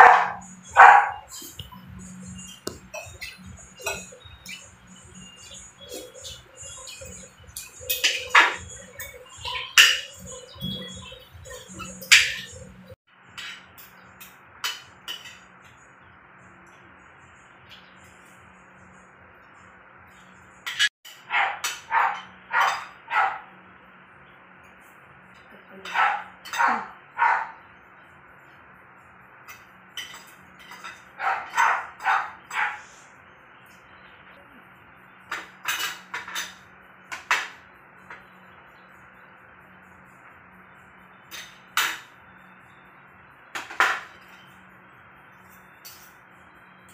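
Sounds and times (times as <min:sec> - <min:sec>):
dog barking: 0:00.0 - 0:01.4, 0:21.2 - 0:23.5, 0:25.8 - 0:27.6, 0:31.2 - 0:32.9
cutlery clinking on a plate: 0:29.5 - 0:32.7, 0:35.3 - 0:37.6.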